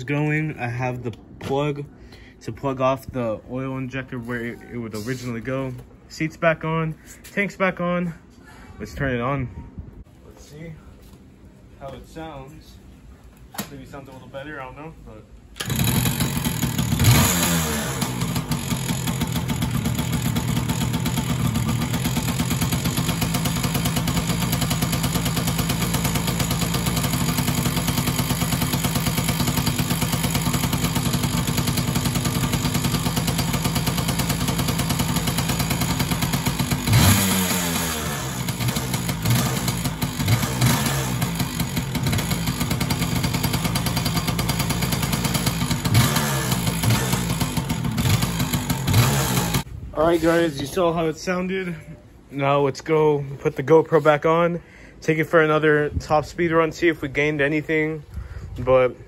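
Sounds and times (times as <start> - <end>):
two-stroke engine revving and idling: 15.6 - 49.7.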